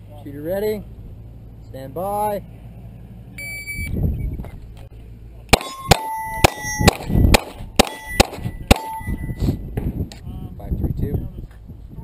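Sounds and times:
shot timer start beep: 0:03.4 - 0:04.0, 0:07.9 - 0:09.4
pistol shots: 0:05.5 - 0:09.2
steel target plate ringing: 0:05.6 - 0:09.6.

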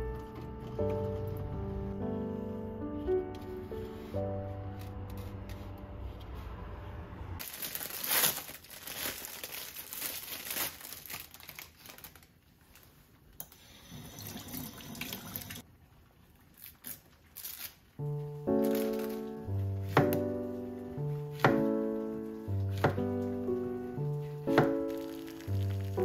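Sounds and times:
plastic bag crinkling: 0:07.4 - 0:13.3, 0:16.4 - 0:26.0
kitchen tap running: 0:13.7 - 0:15.6.

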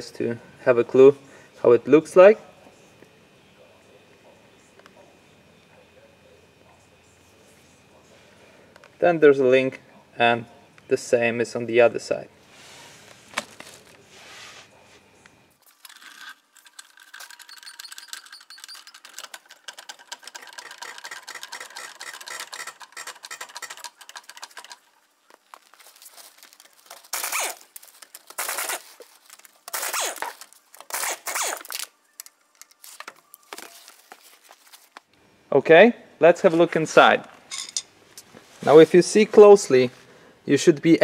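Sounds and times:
fast even clicking and rattling: 0:15.8 - 0:24.8.

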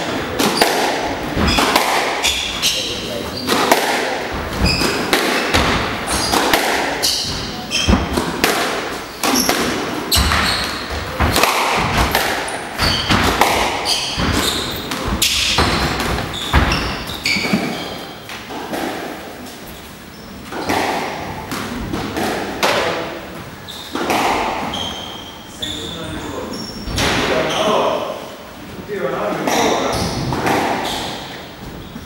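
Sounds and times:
shoes squeaking on wooden floor: 0:00.0 - 0:18.5, 0:23.4 - 0:28.0, 0:29.5 - 0:32.0
squash ball hitting rackets: 0:00.0 - 0:19.5, 0:20.4 - 0:23.2, 0:23.8 - 0:24.8, 0:29.4 - 0:31.8.

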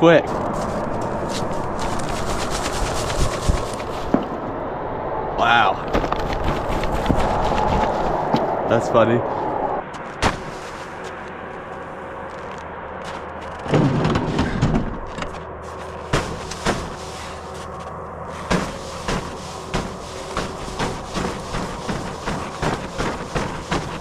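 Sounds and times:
footsteps crunching on ice: 0:00.2 - 0:04.2, 0:09.9 - 0:13.7, 0:15.0 - 0:24.0
loud crunch or knock: 0:10.0 - 0:10.8, 0:13.1 - 0:17.6, 0:18.4 - 0:24.0.

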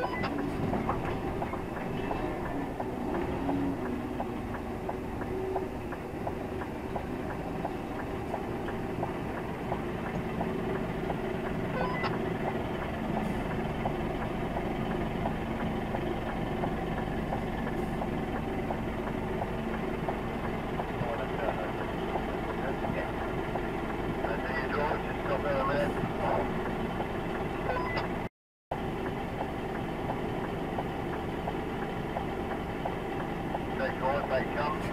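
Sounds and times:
truck diesel engine reversing: 0:00.0 - 0:34.9
steady light ticking: 0:01.3 - 0:22.7, 0:29.0 - 0:33.8.

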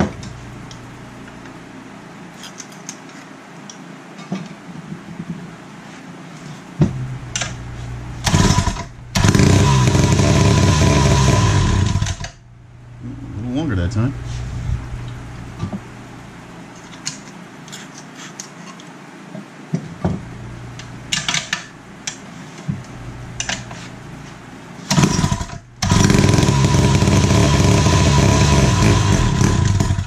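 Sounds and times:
two-stroke engine running loud: 0:08.3 - 0:12.2, 0:24.9 - 0:30.0.

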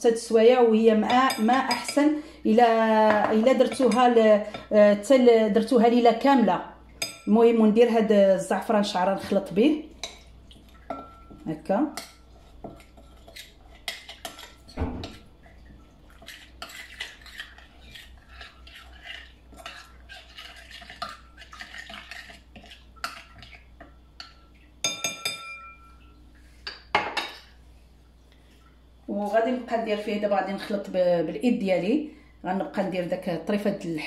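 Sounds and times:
hand mixing marinade in bowl: 0:09.0 - 0:23.7.

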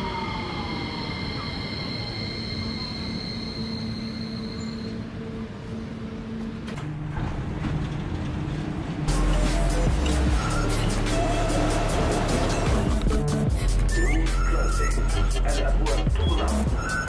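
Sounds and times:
train doors opening: 0:00.9 - 0:13.1.

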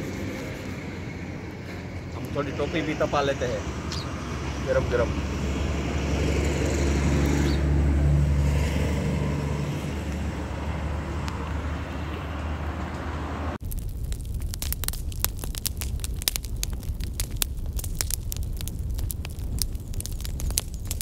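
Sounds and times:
vehicle engine humming: 0:00.0 - 0:15.6
fire crackling and popping: 0:13.6 - 0:21.0.

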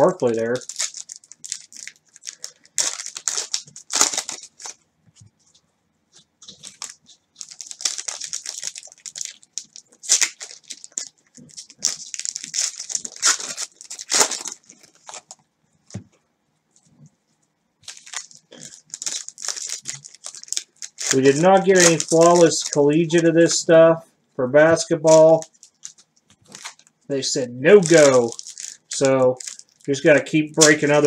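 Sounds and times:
cards rustling and swishing: 0:17.9 - 0:23.1, 0:27.7 - 0:29.6.

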